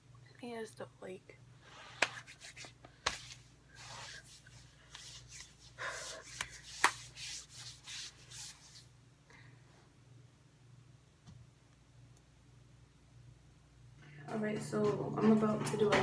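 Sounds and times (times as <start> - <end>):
hands rustling and rubbing objects: 1.7 - 9.0.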